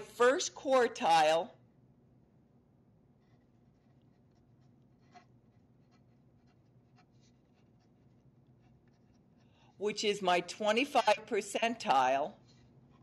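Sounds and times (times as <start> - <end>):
pen writing on paper: 3.2 - 9.5.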